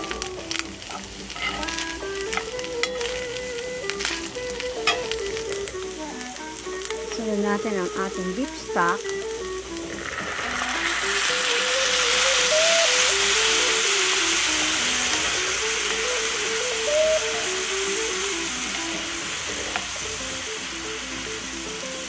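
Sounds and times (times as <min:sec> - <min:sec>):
stock sizzling in a hot skillet: 0:00.0 - 0:22.0
metal spoon stirring: 0:00.9 - 0:01.8, 0:02.4 - 0:03.3.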